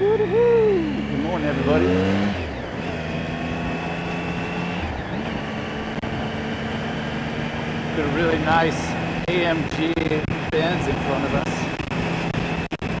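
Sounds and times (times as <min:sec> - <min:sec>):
motorcycle engine running: 0:00.0 - 0:13.0
road and wind noise: 0:00.0 - 0:13.0.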